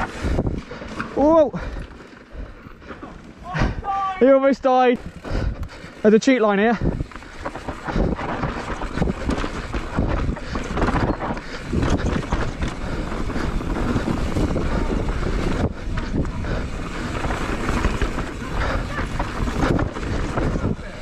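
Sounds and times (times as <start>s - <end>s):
wind buffeting microphone: 0.0s - 1.8s, 6.7s - 21.0s
bike rattles and knocks: 0.0s - 4.0s, 5.0s - 21.0s
bike tyre noise: 0.0s - 21.0s.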